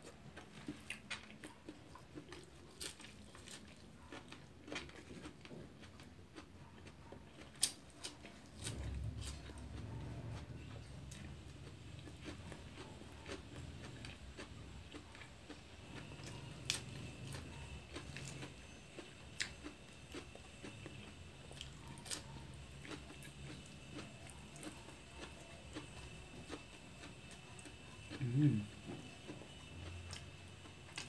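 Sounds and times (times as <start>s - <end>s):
faint chewing: 0.0s - 31.0s.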